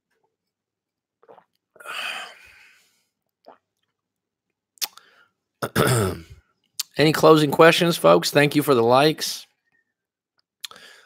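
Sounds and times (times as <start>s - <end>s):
man swallowing water: 1.2s - 2.5s, 3.3s - 3.9s
breathy exhale: 10.7s - 11.0s.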